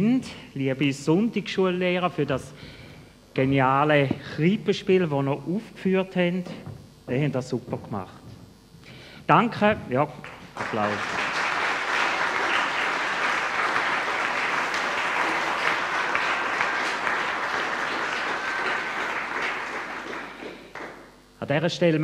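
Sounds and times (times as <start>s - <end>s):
audience applauding: 10.2s - 21.1s.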